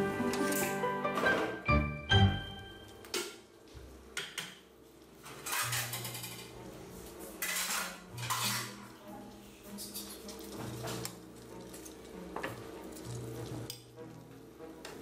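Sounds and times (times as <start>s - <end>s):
faint background music: 0.0s - 15.0s
utensils clattering against pots: 5.2s - 6.7s, 7.3s - 9.0s, 9.7s - 15.0s.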